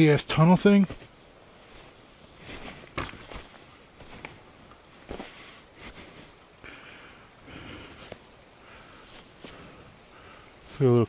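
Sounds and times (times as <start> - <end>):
footsteps on gravel: 2.4 - 4.4.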